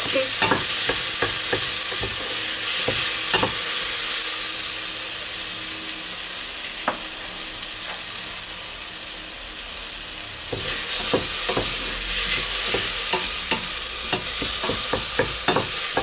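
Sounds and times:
spatula knocking on pot: 0:00.0 - 0:02.2, 0:10.6 - 0:16.0
onions sizzling in hot oil: 0:00.0 - 0:16.0.

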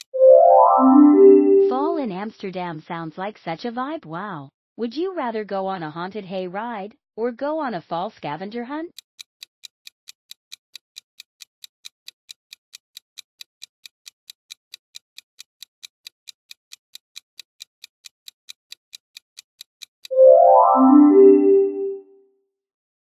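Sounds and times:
clock ticking: 0:08.9 - 0:20.4.

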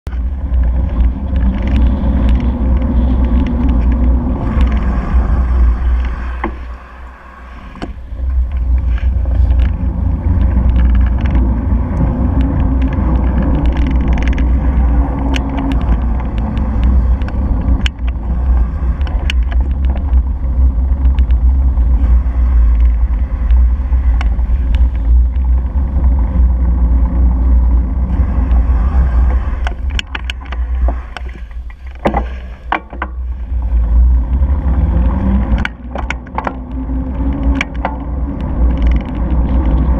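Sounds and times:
car traffic: 0:00.0 - 0:39.9
road rumble: 0:00.0 - 0:39.9
wind: 0:00.0 - 0:39.9
knocks and rattles from bumps: 0:29.3 - 0:33.3.

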